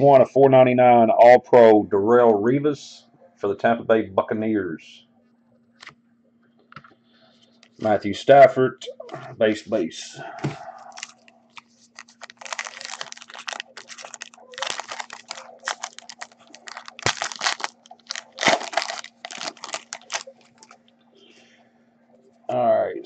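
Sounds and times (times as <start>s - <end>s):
faint steady hum: 0.0s - 23.0s
wrapper tearing and crinkling: 10.9s - 20.8s.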